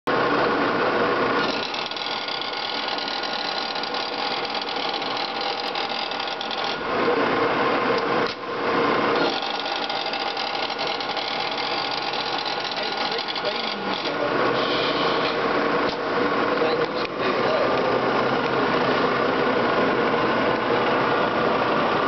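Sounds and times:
boring mill whirring: 0:00.1 - 0:22.0
gear whine: 0:00.4 - 0:07.1, 0:08.7 - 0:15.8.

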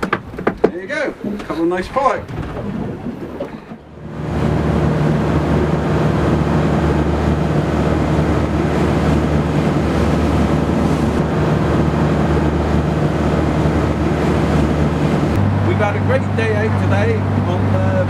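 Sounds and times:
boat engine running: 0:00.0 - 0:18.0
rushing water: 0:00.0 - 0:18.0
wind on microphone: 0:01.1 - 0:18.0.

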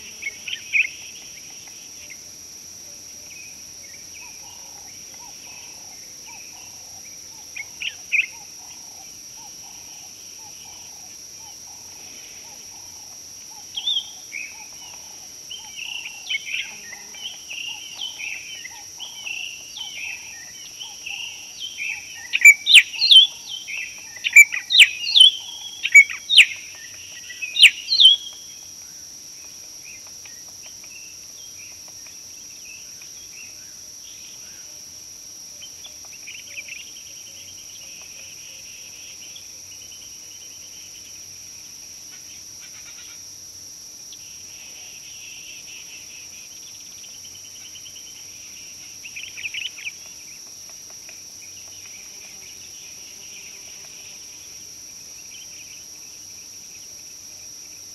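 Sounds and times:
high insect drone: 0:00.0 - 0:57.9
birds singing and chirping: 0:13.6 - 0:28.6.

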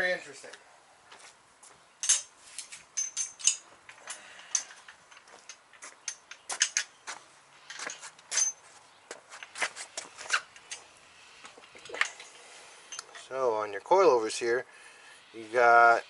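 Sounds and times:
metal hardware clicking together: 0:02.0 - 0:02.3, 0:03.0 - 0:07.0.

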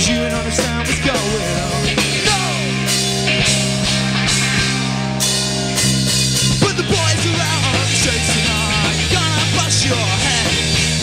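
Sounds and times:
drum kit: 0:00.0 - 0:11.0
electric guitars: 0:00.0 - 0:11.0.

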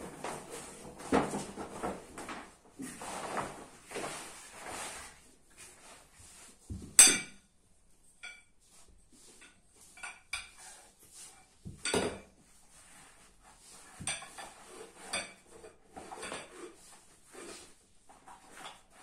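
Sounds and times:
fabric rustling: 0:00.0 - 0:06.8.

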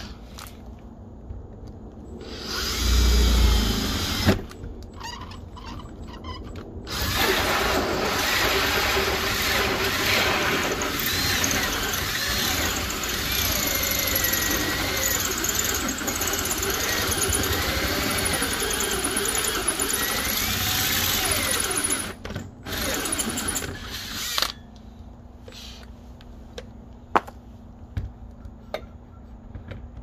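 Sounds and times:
drill cutting sheet metal: 0:02.2 - 0:04.5, 0:06.9 - 0:24.5
saw teeth squealing on metal: 0:04.9 - 0:07.3.

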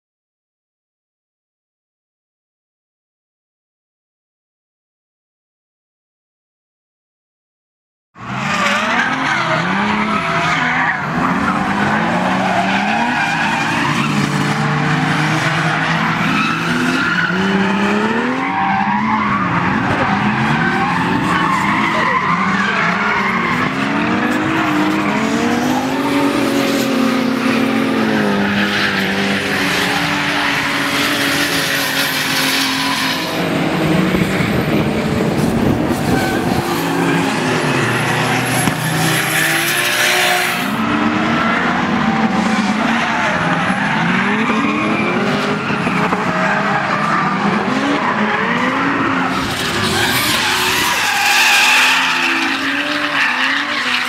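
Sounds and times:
car engines revving: 0:08.2 - 0:54.0
tyres screeching: 0:15.4 - 0:33.9, 0:43.0 - 0:54.0.

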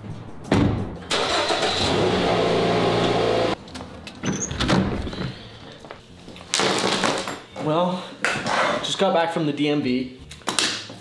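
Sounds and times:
car engine running: 0:01.2 - 0:03.6.

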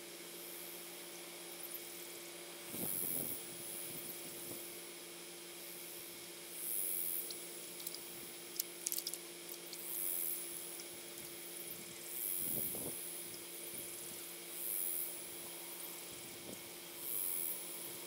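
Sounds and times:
sharp clicks: 0:07.2 - 0:09.8.

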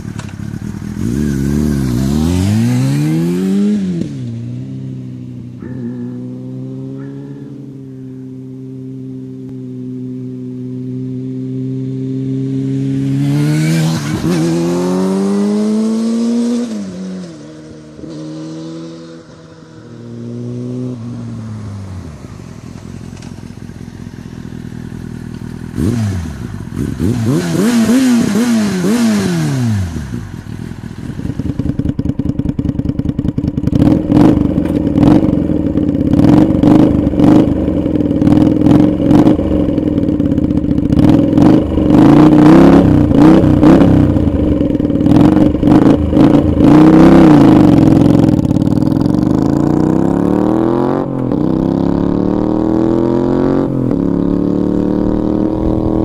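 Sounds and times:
motorcycle idling and revving: 0:00.0 - 0:56.0
motorcycle passing close: 0:00.0 - 0:56.0
sport bike accelerating: 0:00.0 - 0:56.0.

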